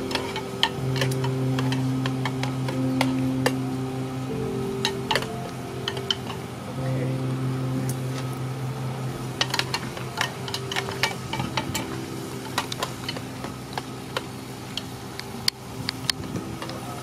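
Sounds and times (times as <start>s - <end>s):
metal utensils scraping and clinking: 0.1s - 3.6s, 9.4s - 13.8s.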